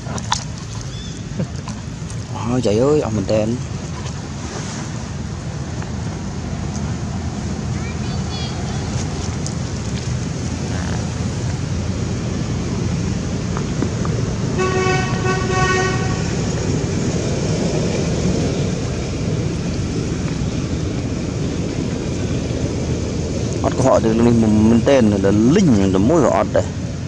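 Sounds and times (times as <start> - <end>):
traffic rumble: 0.0 - 27.0
vehicle horn: 14.5 - 16.5.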